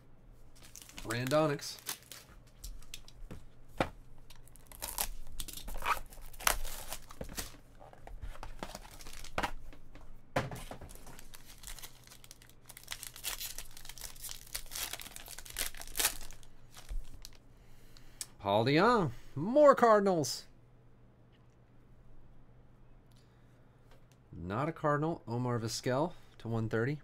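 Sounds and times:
foil pack crinkling and tearing: 0.6s - 3.1s, 4.4s - 7.6s, 8.4s - 9.5s, 10.9s - 17.4s.

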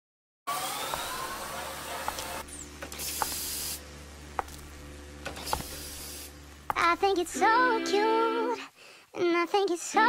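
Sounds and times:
hissing noise: 0.6s - 3.8s, 5.3s - 6.4s.

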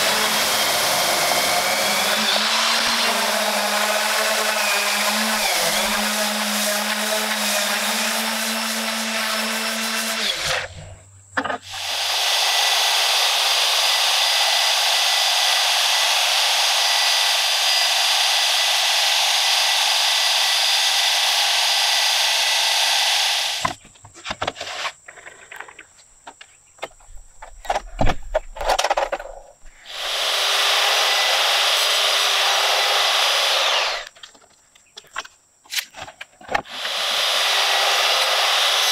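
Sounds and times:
table saw running: 0.0s - 10.6s, 11.7s - 23.6s, 29.9s - 34.1s, 36.7s - 38.9s
orbital sander on wood: 0.0s - 10.7s, 11.7s - 23.6s, 29.9s - 34.1s, 36.7s - 38.9s.

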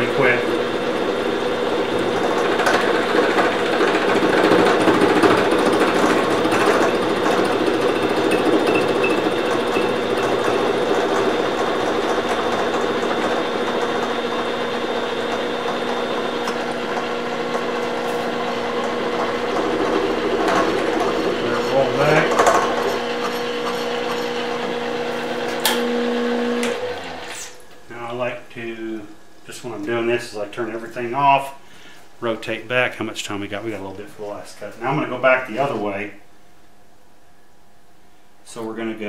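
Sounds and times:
milling machine cutting metal: 0.0s - 27.6s.

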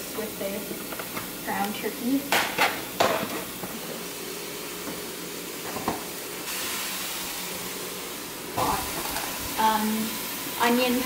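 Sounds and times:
meat sizzling in frying pan: 0.0s - 11.0s.

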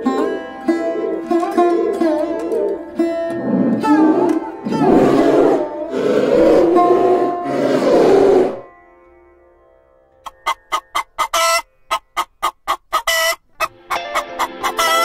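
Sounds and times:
pheasant clucking: 10.2s - 15.0s.

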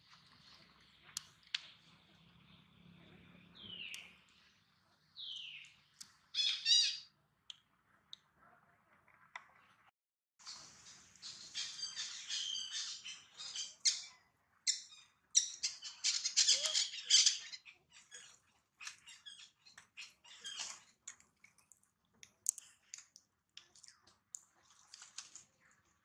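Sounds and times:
high-pitched squawking animal calls: 15.6s - 18.3s.

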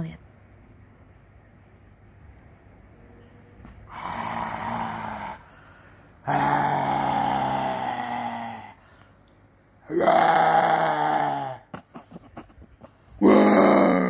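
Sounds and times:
cat growling: 3.7s - 5.5s, 6.2s - 8.8s, 9.8s - 11.7s, 13.1s - 14.0s.

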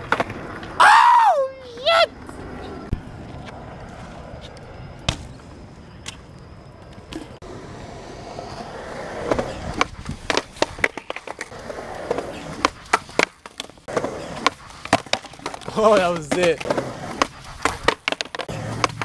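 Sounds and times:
skateboard wheels rolling on concrete: 0.0s - 19.0s
bike landing thump: 5.0s - 5.4s
skateboard clacking: 9.2s - 19.0s.

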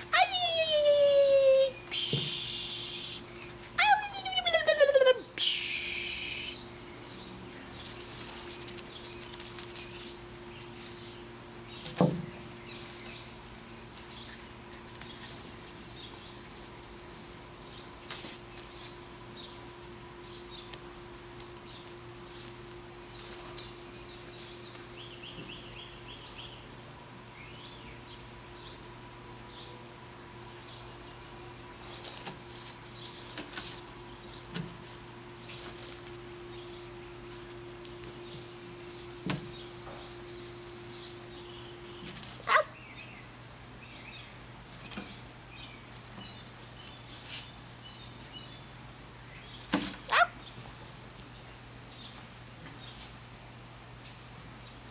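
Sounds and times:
small birds chirping: 0.0s - 54.9s
steady low hum: 5.2s - 49.7s
leaves rustling on wooden table: 5.9s - 16.2s, 20.7s - 25.6s, 31.8s - 36.4s, 44.6s - 48.6s, 49.5s - 51.4s.

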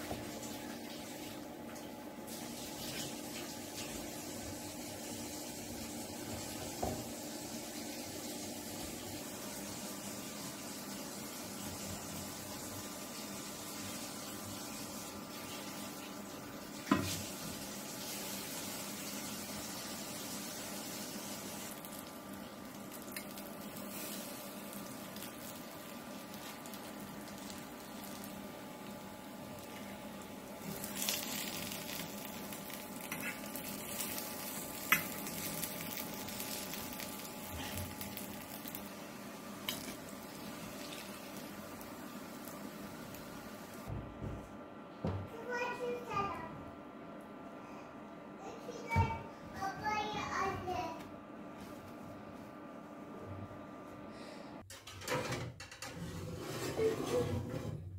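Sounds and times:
potato sizzling in oil: 2.3s - 43.9s.

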